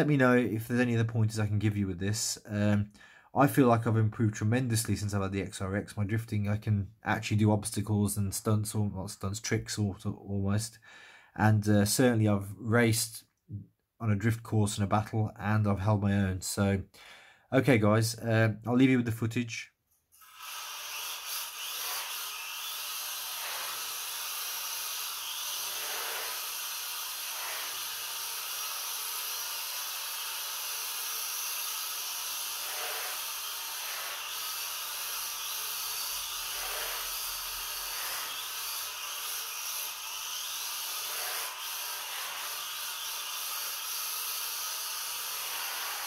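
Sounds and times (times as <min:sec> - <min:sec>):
small electric motor whirring: 0:20.2 - 0:46.0.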